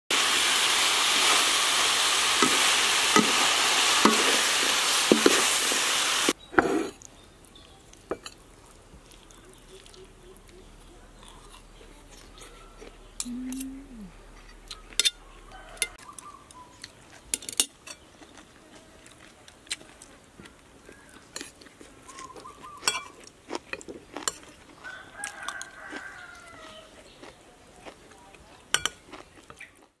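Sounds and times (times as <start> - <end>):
stir-fry sizzling in a pan: 0.1 - 6.9
cutlery clinking on plates: 8.1 - 8.4, 14.5 - 15.2, 17.3 - 18.1, 22.8 - 23.2, 28.7 - 29.1.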